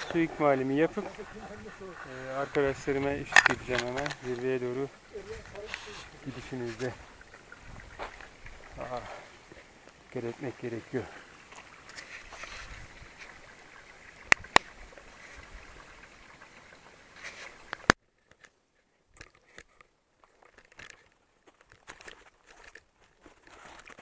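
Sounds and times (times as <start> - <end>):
steady hiss: 0.0 - 18.0
footsteps crunching on snow: 7.8 - 8.6, 21.4 - 24.0.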